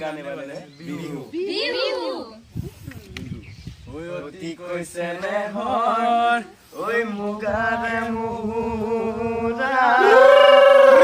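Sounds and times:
young male voices singing: 3.9s - 11.0s.

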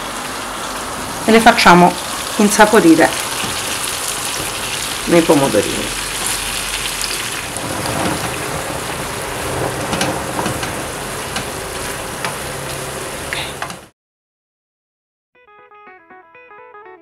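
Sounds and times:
sauce sizzling in a frying pan: 0.0s - 7.6s.

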